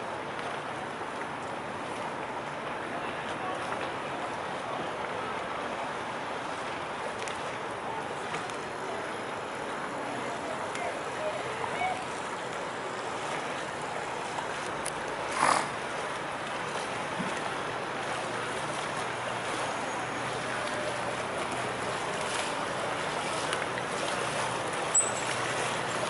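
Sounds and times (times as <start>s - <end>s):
outdoor noise: 0.0s - 26.0s
outboard motor running: 9.0s - 26.0s.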